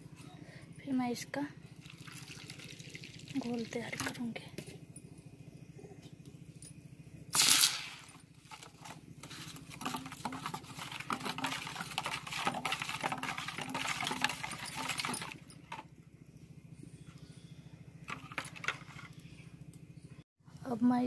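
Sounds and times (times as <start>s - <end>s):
batter whisked in steel bowl: 8.3s - 15.8s
bowl clattering: 8.5s - 15.8s.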